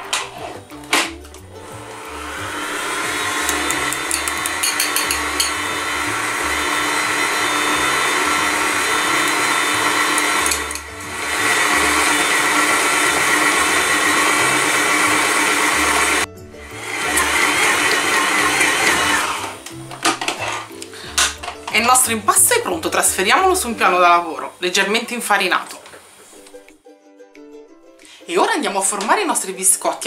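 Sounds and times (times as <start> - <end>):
electric stand mixer running: 0.0 - 0.7, 1.4 - 21.3.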